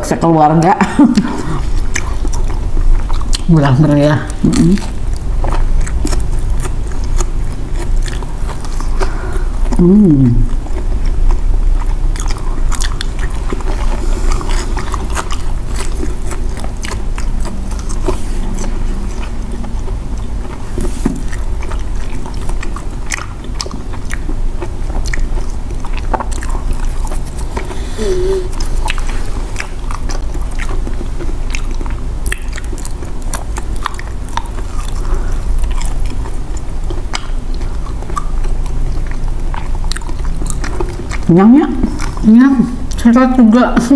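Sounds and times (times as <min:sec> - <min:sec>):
people chewing: 0:00.8 - 0:43.9
person humming: 0:09.8 - 0:10.5, 0:27.8 - 0:28.6.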